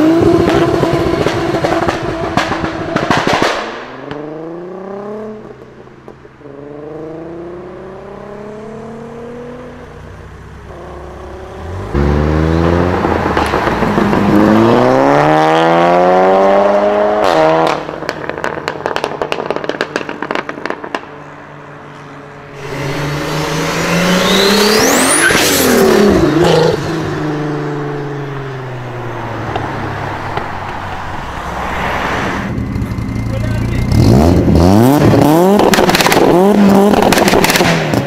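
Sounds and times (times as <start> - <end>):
exhaust crackles and pops: 0.3 - 4.2, 17.2 - 21.2, 35.0 - 38.0
car engine revving hard: 10.7 - 18.4, 22.6 - 27.5, 33.9 - 38.0
car passing with rising whistle: 22.5 - 27.3.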